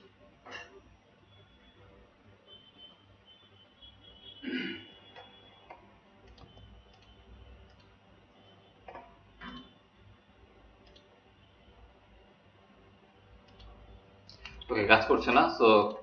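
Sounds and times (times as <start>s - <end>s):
computer mouse and keyboard clicks: 5.2s - 7.9s, 10.8s - 11.1s, 13.4s - 14.7s.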